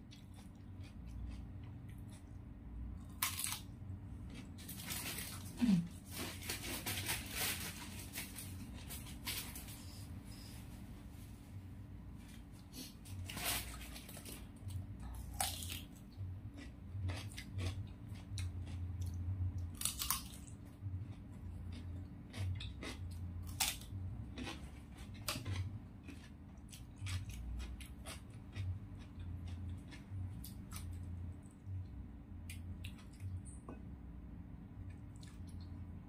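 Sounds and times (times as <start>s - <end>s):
crunchy chewing: 0.0s - 2.4s, 3.0s - 9.2s, 12.3s - 31.8s.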